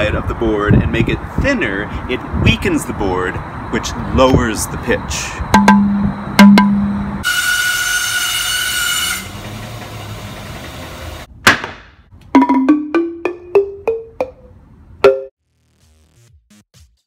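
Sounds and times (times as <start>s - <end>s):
wooden xylophone notes: 5.6s - 7.0s, 12.3s - 15.3s.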